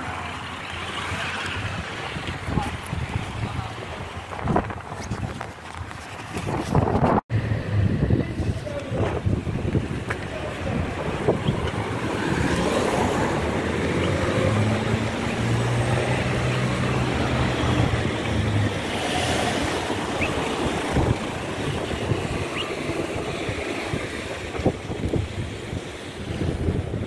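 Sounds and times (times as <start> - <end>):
street traffic: 0.0 - 27.0
wind on microphone: 1.5 - 27.0
car engine humming: 7.3 - 27.0.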